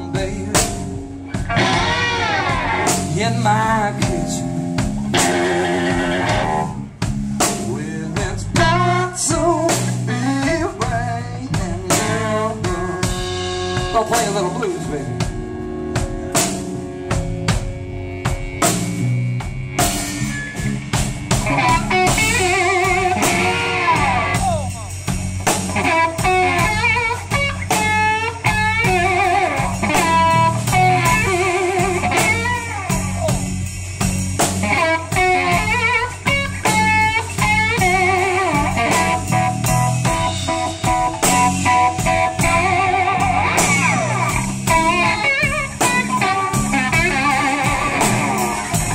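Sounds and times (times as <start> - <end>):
bass guitar: 0.0 - 48.9
drums: 0.0 - 48.9
distorted electric guitar solo: 1.2 - 3.2, 5.0 - 7.0, 14.5 - 33.6, 34.6 - 48.9.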